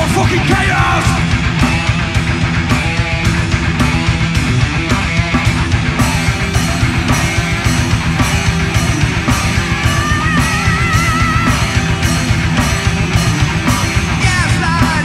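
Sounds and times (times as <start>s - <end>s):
drum beat: 0.0s - 15.0s
heavy metal band playing: 0.0s - 15.0s.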